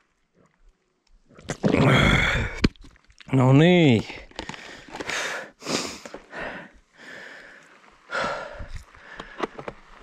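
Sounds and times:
person breathing hard: 4.4 - 9.6.

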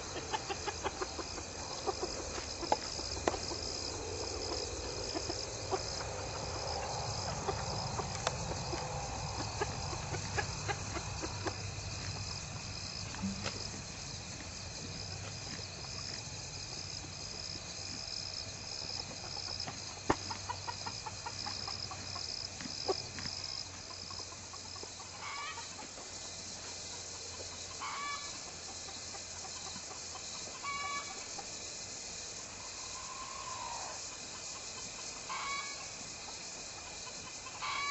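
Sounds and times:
chickens clucking: 0.0 - 16.3, 18.8 - 26.2, 26.9 - 31.5, 33.0 - 37.9
insects chirring: 0.0 - 37.9.

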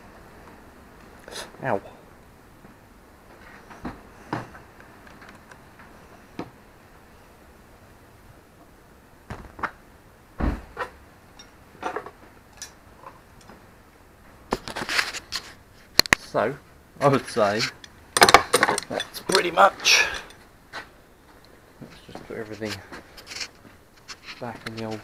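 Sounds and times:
dull thump: 9.3 - 9.8, 10.4 - 10.9
clatter of small parts: 17.6 - 19.5.

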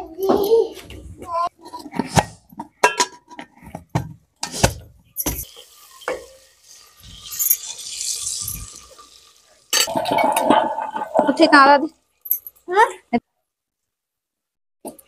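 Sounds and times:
metal ladle clanking against pot: 2.8 - 3.4
onions sizzling in oil: 5.4 - 9.9.

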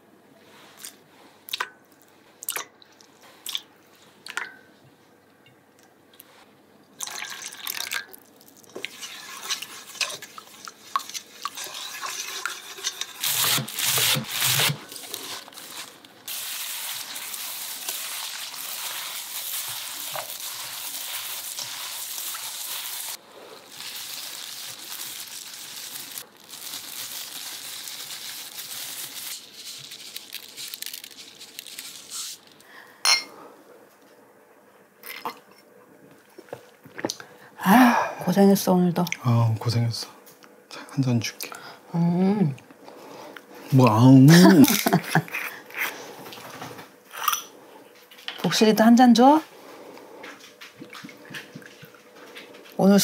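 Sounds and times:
hands tossing chives wet rustle: 8.5 - 32.7
wooden spoon stirring in steel bowl: 8.7 - 30.3.

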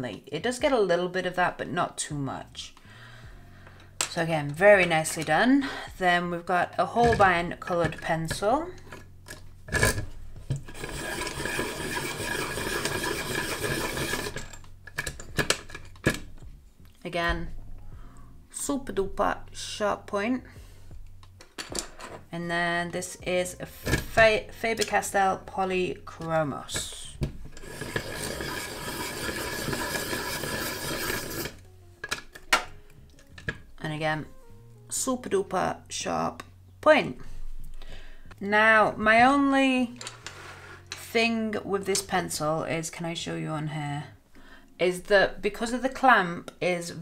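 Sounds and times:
pencil sharpener grinding: 10.6 - 14.7, 27.6 - 31.7.

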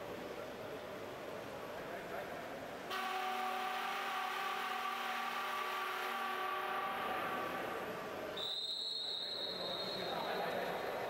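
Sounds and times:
arena horn blast: 2.9 - 8.1.

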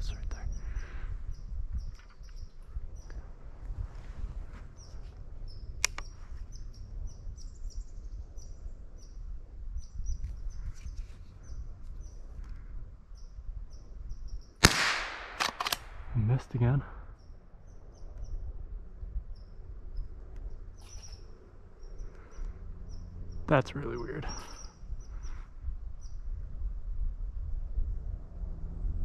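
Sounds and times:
rifle clicks: 14.6 - 16.1
rifle shot: 14.6 - 16.3
high bird chirps: 20.8 - 23.1, 23.7 - 25.4.

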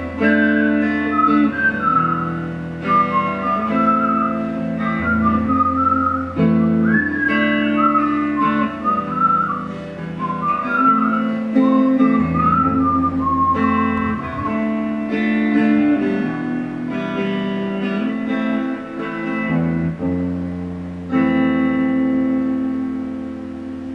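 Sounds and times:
electric guitar chords: 0.0 - 23.9
whistled melody: 0.2 - 16.6.

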